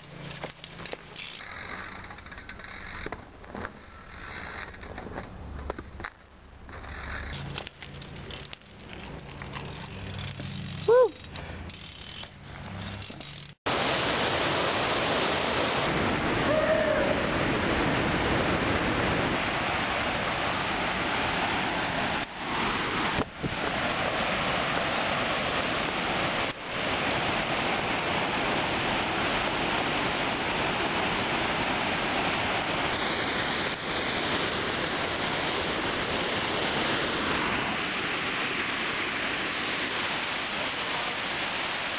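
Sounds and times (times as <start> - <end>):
rush of flowing water: 13.7 - 41.9.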